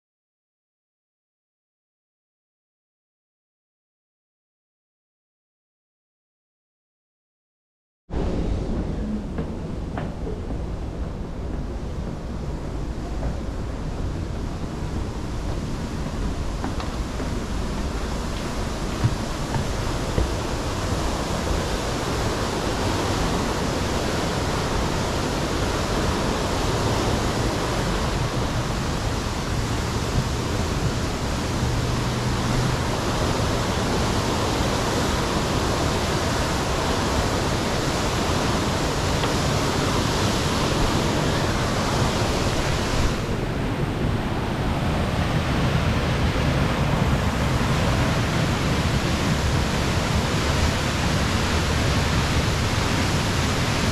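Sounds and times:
water rushing over rocks: 13.6 - 53.9.

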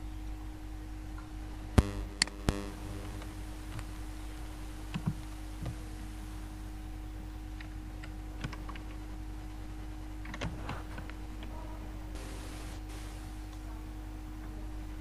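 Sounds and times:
steady electrical hum: 0.0 - 15.0
mouse and keyboard clicks: 7.6 - 9.0.

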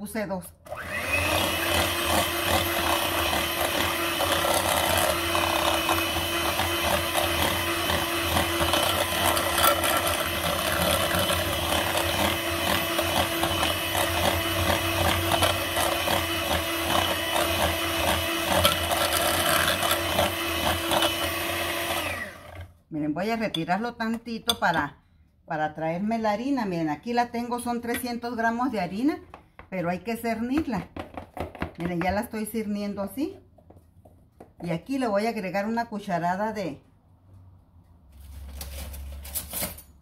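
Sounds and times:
electric hand mixer running: 0.7 - 22.7.

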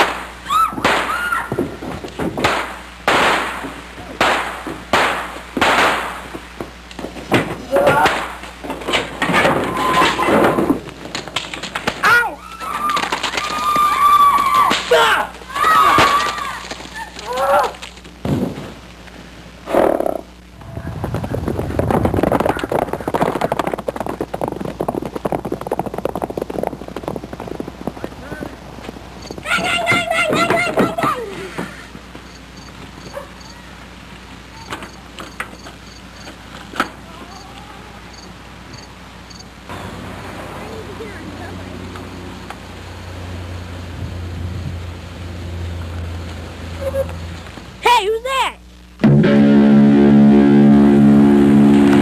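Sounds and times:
horses galloping on dirt: 0.0 - 18.9, 19.7 - 39.8
people shouting: 0.4 - 1.6, 7.6 - 8.3, 9.6 - 10.7, 12.0 - 17.8, 29.4 - 31.5
loud bangs and crashes: 49.0 - 52.0.

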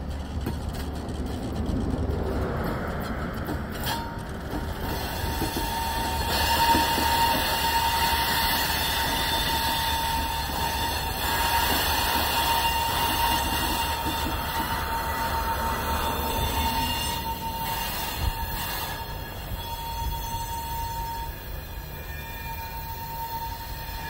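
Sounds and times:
freight train rumbling past: 0.0 - 24.0
thin wheel squeal: 4.8 - 24.0.

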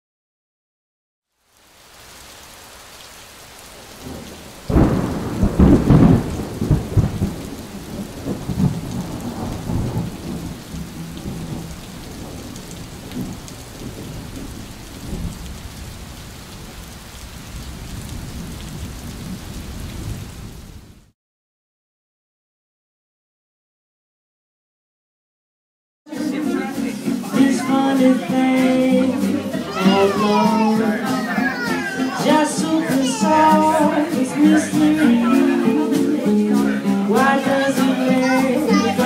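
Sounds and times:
steady rain: 1.3 - 21.1, 26.1 - 39.0
thunder clap rolling: 3.8 - 21.1.

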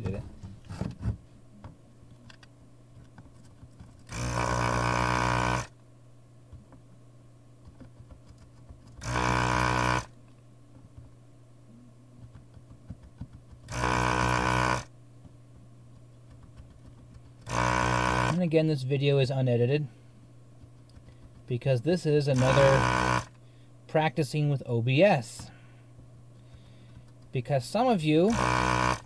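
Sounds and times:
desoldering vacuum pump buzzing: 3.8 - 5.8, 8.8 - 10.2, 13.0 - 15.0, 16.2 - 18.6, 20.6 - 24.1, 25.0 - 29.0.

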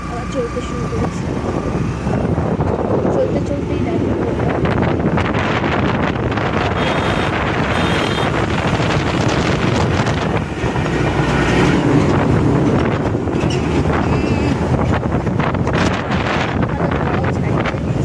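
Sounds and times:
motorcycle engine and road noise: 0.0 - 18.0
wind rushing over microphone: 0.6 - 18.0.

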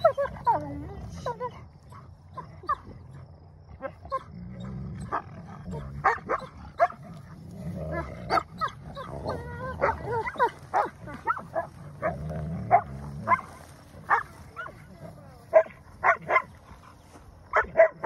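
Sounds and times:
puppies growling: 0.0 - 17.2
puppies yipping and whining: 8.3 - 11.7.

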